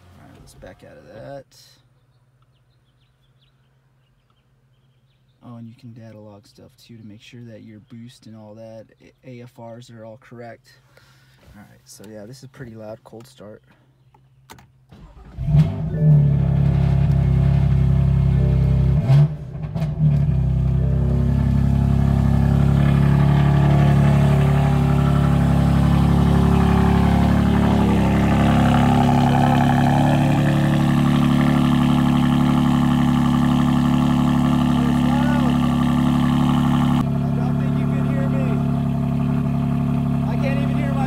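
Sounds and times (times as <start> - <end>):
car engine starting and idling: 14.6 - 41.0.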